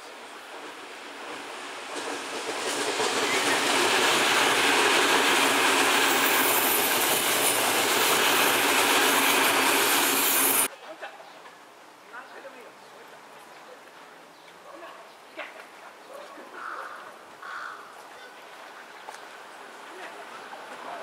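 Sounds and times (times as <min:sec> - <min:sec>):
train wheels rumbling on rail: 0:00.0 - 0:10.7.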